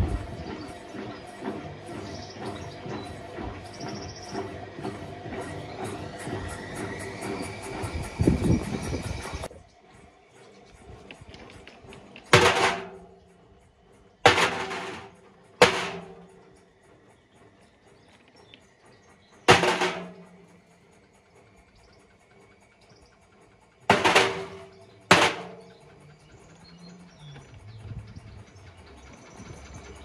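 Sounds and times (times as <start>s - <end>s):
stones crashing in washing machine drum: 12.3s - 13.0s, 14.2s - 16.2s, 19.5s - 20.4s, 23.9s - 25.7s.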